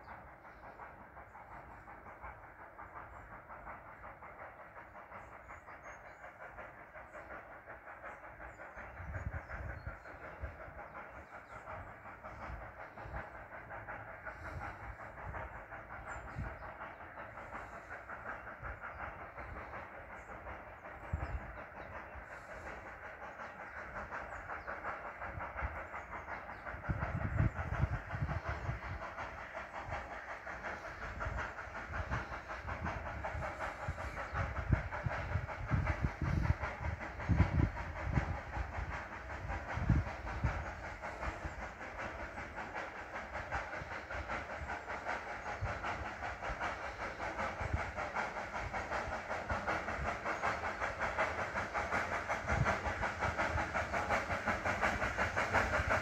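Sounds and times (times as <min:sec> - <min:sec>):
steam locomotive chuffing and hissing: 0:00.0 - 0:56.0
low wind gusts rumbling: 0:23.8 - 0:56.0.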